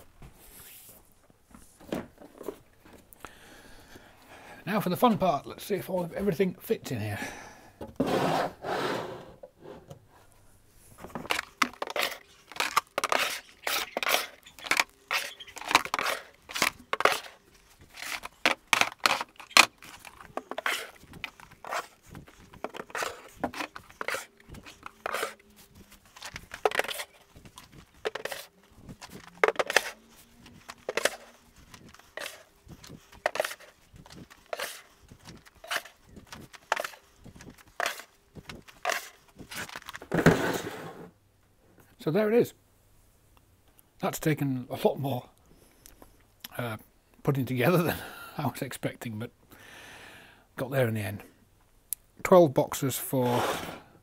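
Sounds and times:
plastic boxes clacking on wood: 0:11.0 - 0:40.7.

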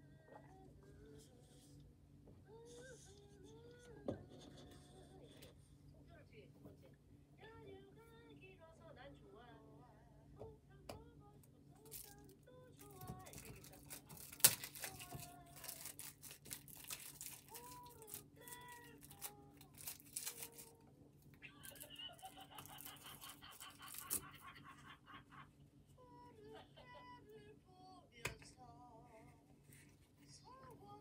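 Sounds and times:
faint clicks and crinkling: 0:11.8 - 0:24.6.

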